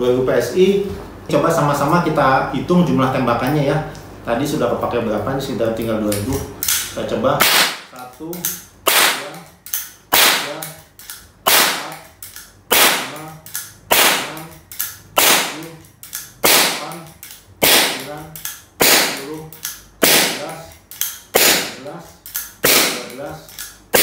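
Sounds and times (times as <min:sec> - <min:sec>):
air pistol shots: 0:07.4 - 0:07.9, 0:08.8 - 0:09.4, 0:10.1 - 0:10.7, 0:11.4 - 0:12.0, 0:12.7 - 0:13.3, 0:13.9 - 0:14.6, 0:15.2 - 0:15.8, 0:16.4 - 0:18.2, 0:18.8 - 0:19.4, 0:20.0 - 0:21.8, 0:22.6 - 0:23.3.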